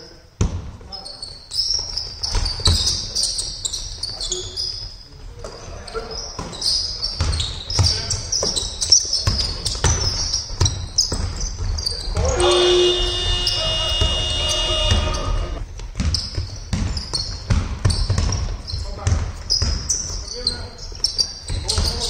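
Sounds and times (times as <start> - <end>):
sneakers squeaking: 0.4 - 22.0
high-pitched tone: 12.4 - 15.6
basketball bouncing on hardwood floor: 13.1 - 15.2, 15.8 - 19.9.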